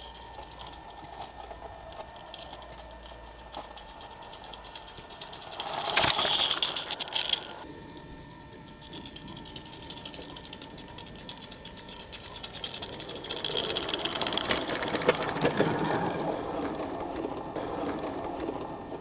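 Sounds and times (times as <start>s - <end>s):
wheels clicking over rails: 0.0s - 7.7s, 8.6s - 19.0s
steam locomotive exhaust beats: 0.0s - 19.0s.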